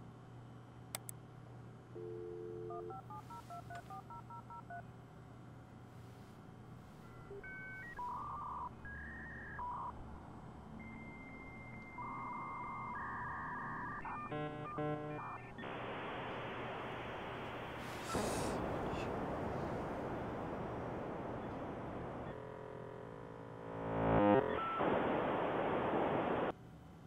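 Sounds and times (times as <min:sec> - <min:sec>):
dial tone: 0:02.0 - 0:04.8, 0:07.0 - 0:10.0, 0:10.8 - 0:15.6, 0:24.1 - 0:26.3
touch-tone dialing: 0:02.7 - 0:04.8
answering beeps: 0:07.0 - 0:09.9
long steady high tone: 0:10.6 - 0:22.4.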